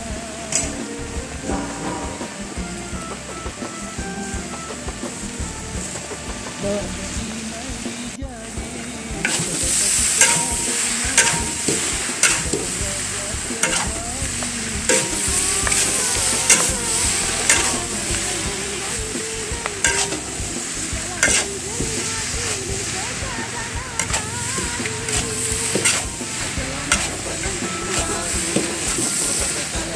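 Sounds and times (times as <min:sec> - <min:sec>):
noodles sizzling in a wok: 0:00.0 - 0:29.9
spatula clacking on wok: 0:09.2 - 0:29.9.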